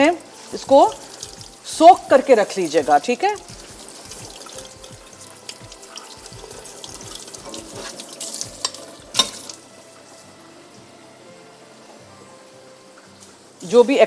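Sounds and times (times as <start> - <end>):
tap water running: 0.0 - 11.0.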